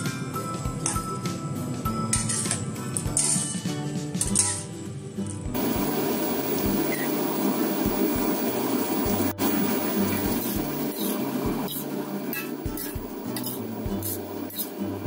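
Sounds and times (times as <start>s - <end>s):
sauce bubbling and sizzling in a wok: 5.6s - 15.0s.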